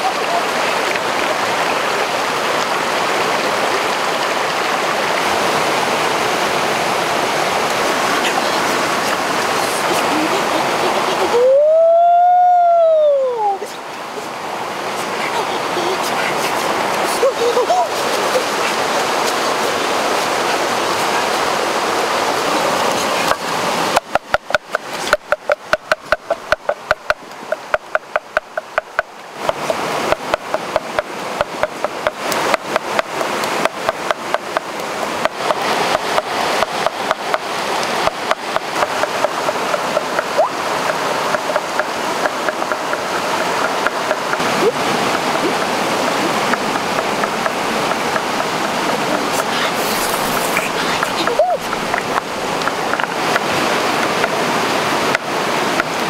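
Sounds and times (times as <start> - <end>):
stream running over rocks: 0.0 - 56.0
pestle pounding in mortar: 24.0 - 37.4, 38.0 - 44.5.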